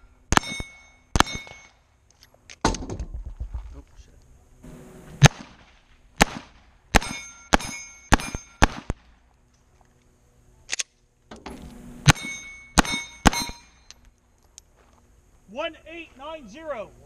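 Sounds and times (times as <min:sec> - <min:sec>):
steel plate ringing clang: 0:00.0 - 0:01.8, 0:07.0 - 0:08.7, 0:12.0 - 0:13.9
pistol shots: 0:00.3 - 0:01.8, 0:05.2 - 0:09.1, 0:12.0 - 0:13.8.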